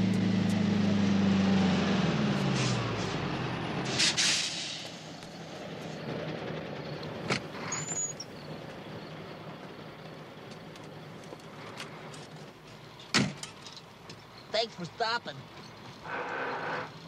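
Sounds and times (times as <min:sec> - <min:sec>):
truck idling: 0:00.0 - 0:17.0
short high squeak: 0:07.6 - 0:08.3.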